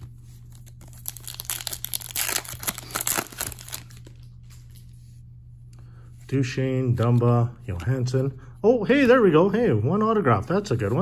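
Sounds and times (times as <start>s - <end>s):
foil wrapper tearing and crinkling: 0.5s - 4.2s.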